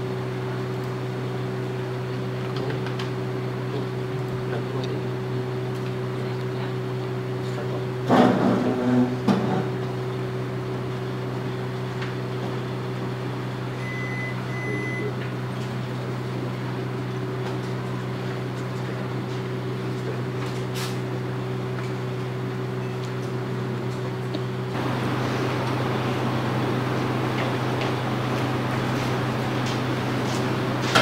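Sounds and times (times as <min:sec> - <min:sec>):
low electrical hum: 0:08.6 - 0:31.0
short high beeps: 0:13.8 - 0:15.1.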